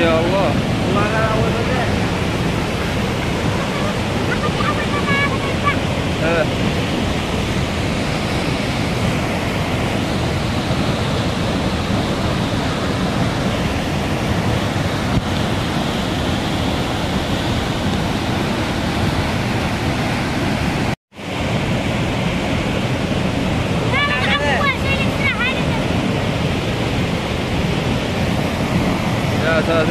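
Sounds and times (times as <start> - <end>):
floodwater rushing over rocks: 0.0 - 29.9.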